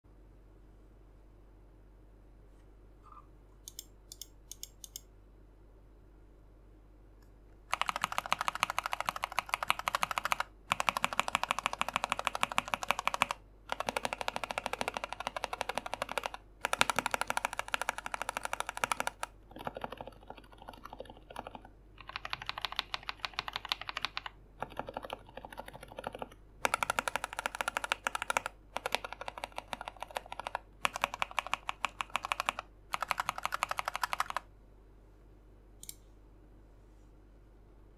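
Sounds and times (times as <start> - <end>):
fast typing on mechanical keyboard: 7.7 - 34.5.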